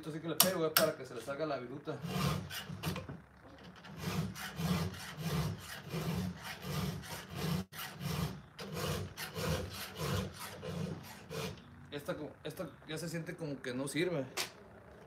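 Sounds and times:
file rasping on chainsaw chain: 2.0s - 3.0s, 3.8s - 11.6s.

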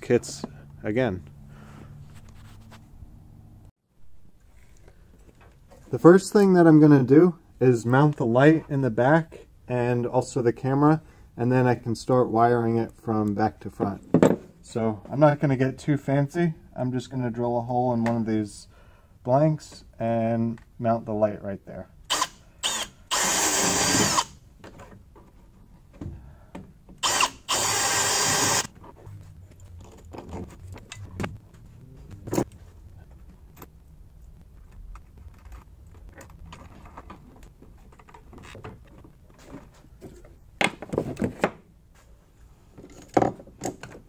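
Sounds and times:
cordless drill boring through metal: 22.1s - 24.4s, 27.0s - 28.7s.

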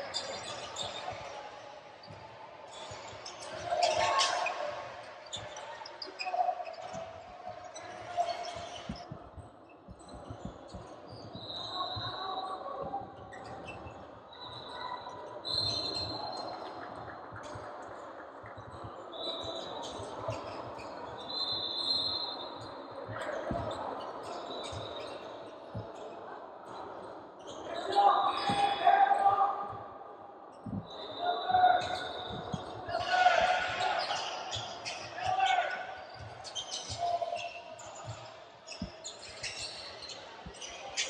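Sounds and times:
shoe squeaks: 0.1s - 1.4s, 10.1s - 16.7s, 19.2s - 25.3s, 27.7s - 29.0s, 30.6s - 41.0s
footsteps: 6.7s - 14.2s, 30.6s - 41.0s.

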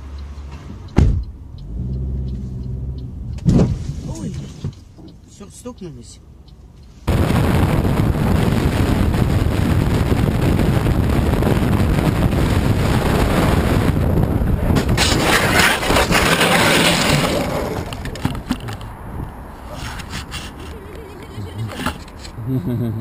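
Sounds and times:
car road noise rumble: 0.0s - 23.0s.

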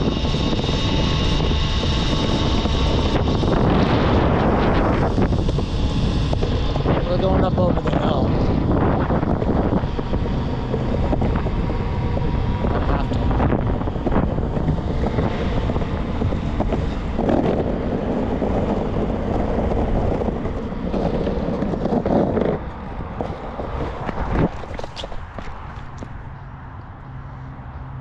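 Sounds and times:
rumbling road noise: 0.0s - 28.0s
wind buffeting microphone: 0.0s - 28.0s.

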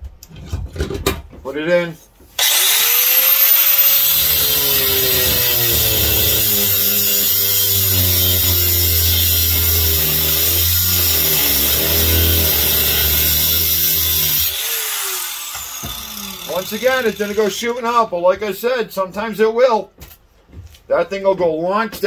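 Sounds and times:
angle grinder cutting metal: 2.4s - 18.0s.

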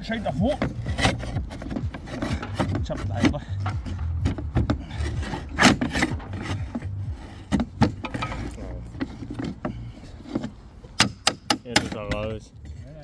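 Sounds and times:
steel tool scraping against slate: 0.6s - 3.9s, 4.5s - 13.0s
sharp knocks and clicks: 10.4s - 12.3s.

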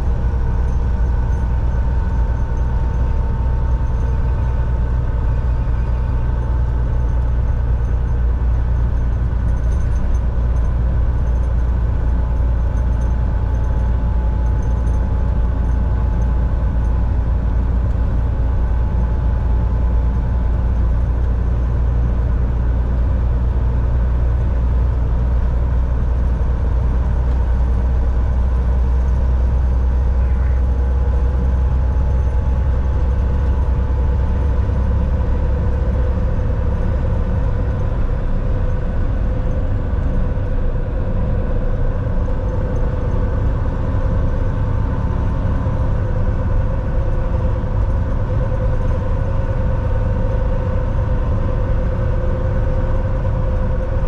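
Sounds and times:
faint steady whine: 0.0s - 54.0s
road noise: 0.0s - 54.0s
truck engine drone: 0.0s - 54.0s.

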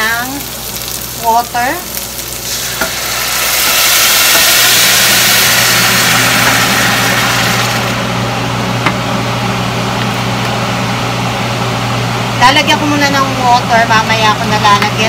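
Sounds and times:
water sizzling in hot skillet: 0.0s - 8.0s
steady low hum: 0.0s - 15.0s.

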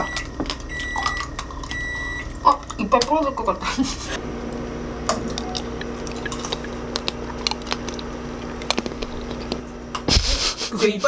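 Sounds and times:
crunchy chewing of candied fruit: 5.3s - 9.6s.

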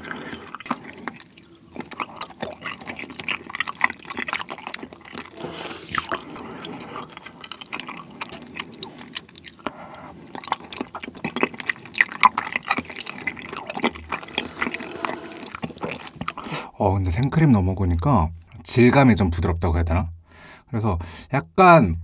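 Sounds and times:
wet chewing and lip smacking: 0.0s - 16.6s
chopsticks squishing in sauce: 0.0s - 16.7s.

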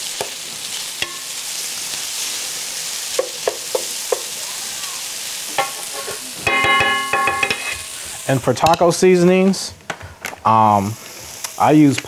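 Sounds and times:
food sizzling in a pan: 0.0s - 12.0s
spoon knocking against pan: 5.6s - 7.8s.

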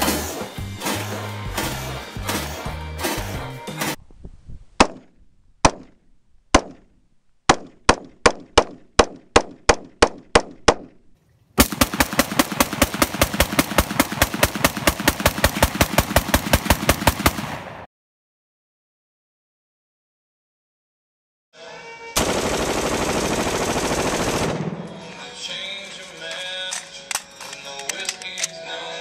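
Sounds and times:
rifle gunfire: 11.6s - 17.9s, 22.2s - 24.9s.

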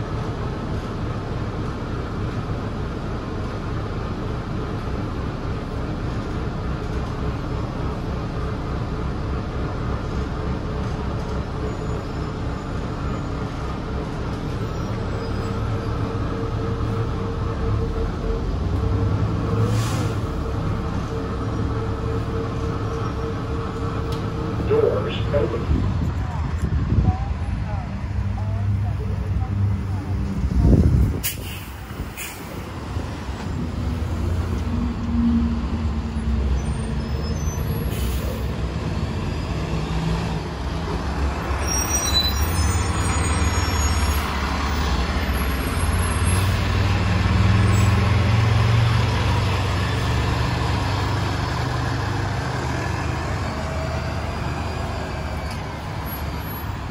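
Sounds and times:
bus engine accelerating: 0.0s - 56.9s.

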